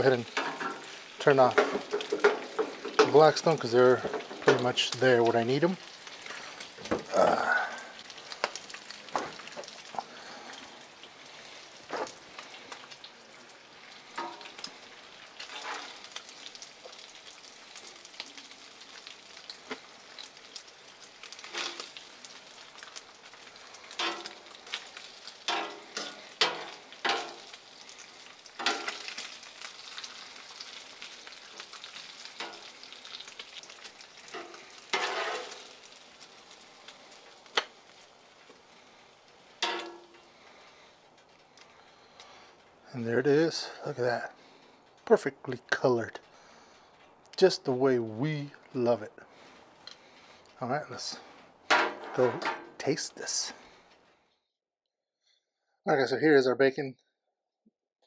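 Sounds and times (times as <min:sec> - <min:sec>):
bacon sizzling: 0:00.0 - 0:45.4, 0:46.2 - 0:53.8
metal tongs clacking on steel: 0:39.6 - 0:40.1.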